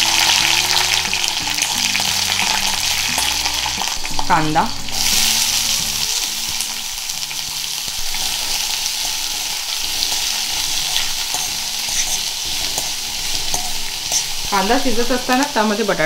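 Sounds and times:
onion sizzling in hot oil: 0.0 - 16.0
spatula scraping metal pan: 8.1 - 14.7.

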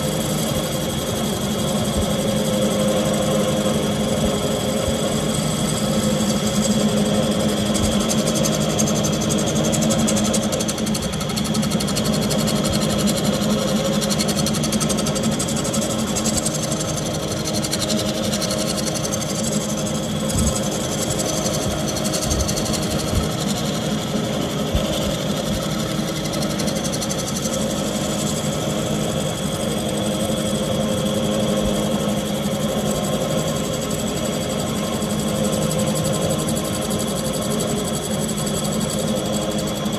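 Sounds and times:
wood lathe motor hum: 0.0 - 39.9
gouge cutting spinning wood: 2.9 - 28.5.

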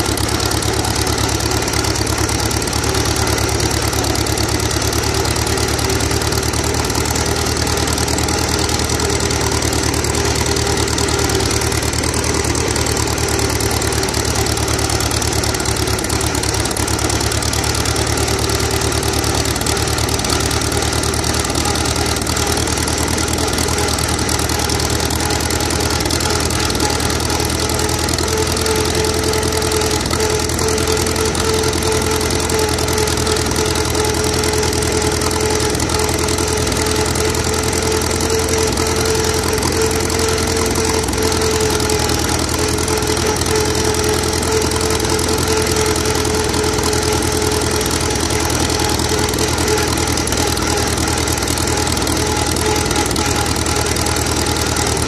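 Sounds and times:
tractor engine exhaust beat: 0.0 - 55.0.

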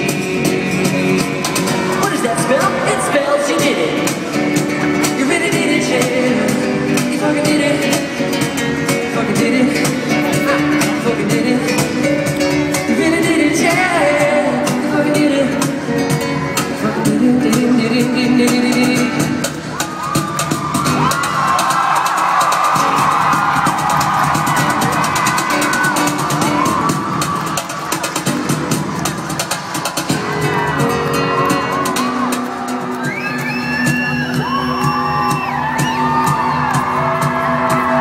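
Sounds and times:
man singing: 0.0 - 19.7
drums: 0.0 - 38.0
guitar: 0.0 - 38.0.

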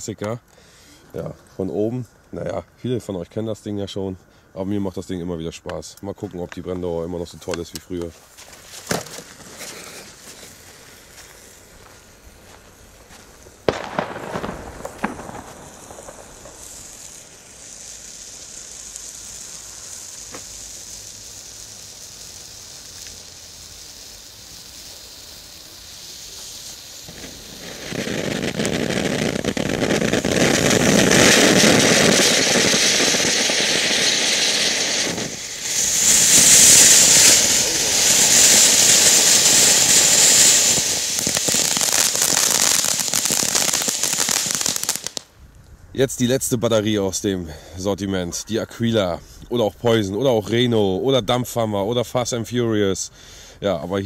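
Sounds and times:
firework cracks: 5.7 - 45.4
firework hissing: 7.2 - 45.4.

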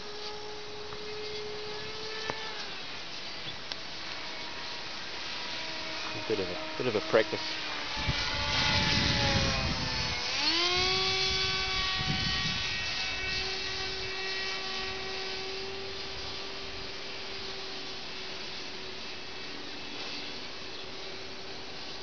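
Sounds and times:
model airplane engine buzz: 0.0 - 22.0
wind buffeting microphone: 7.2 - 17.6.

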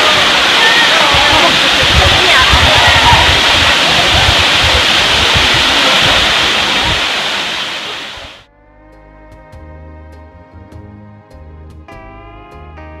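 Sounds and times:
waterfall rushing into a pool: 0.0 - 8.5
soft instrumental music: 8.5 - 13.0.

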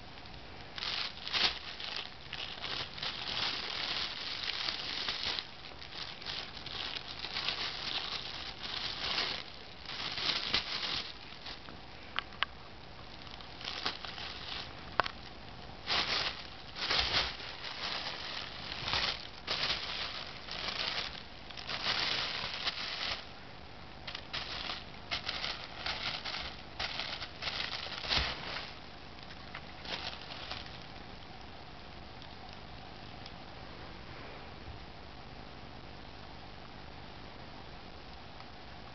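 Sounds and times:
plastic bag crinkling: 0.0 - 23.4, 24.0 - 31.0.

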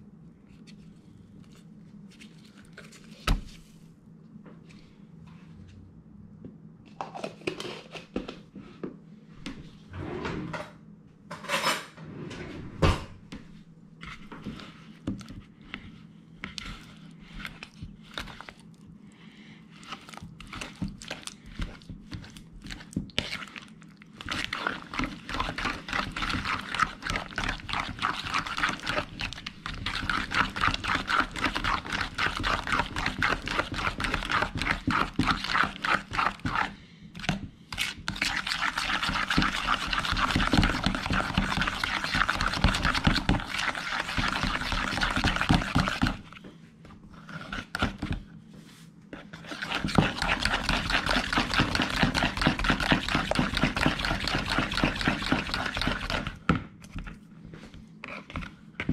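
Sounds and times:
fork beating in a mixing bowl: 20.4 - 23.6, 24.2 - 46.4, 49.2 - 56.4.

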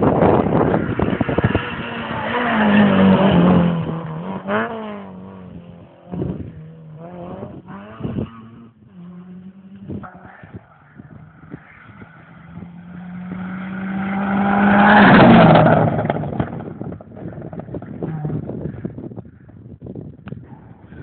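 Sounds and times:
rally car engine revving past: 0.4 - 16.8.

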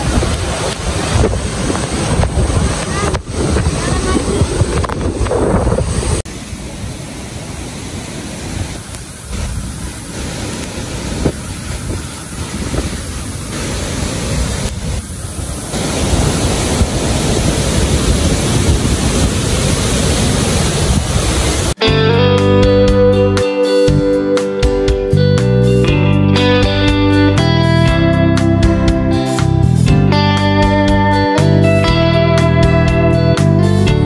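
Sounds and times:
rushing noise with low rumble: 0.0 - 21.8.

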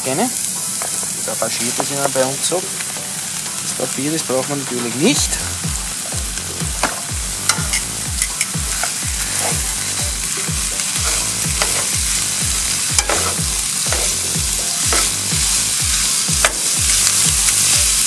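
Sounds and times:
meat sizzling in hot oil: 0.0 - 18.0
metal tongs scraping a pan: 0.8 - 5.2, 6.9 - 12.1, 12.8 - 18.0
low regular beat: 4.4 - 18.0.

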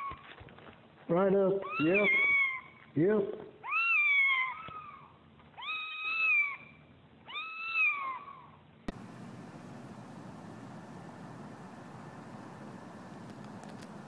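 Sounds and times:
kitten meowing: 3.6 - 6.7, 7.3 - 8.5
steady hiss: 8.9 - 14.0
click: 13.1 - 14.0.

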